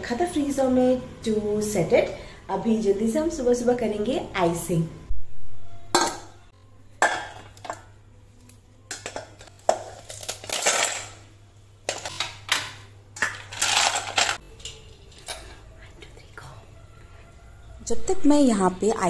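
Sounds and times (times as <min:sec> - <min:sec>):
ice cubes clinking and clattering: 0:09.7 - 0:11.2, 0:11.9 - 0:15.2.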